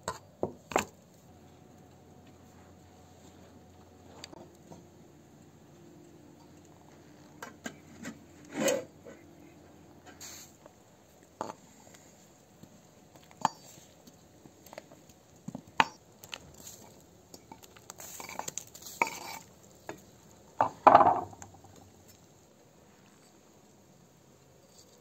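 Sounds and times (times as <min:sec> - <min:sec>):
board scraping pot rim: 0:07.7 - 0:09.2, 0:18.0 - 0:19.5.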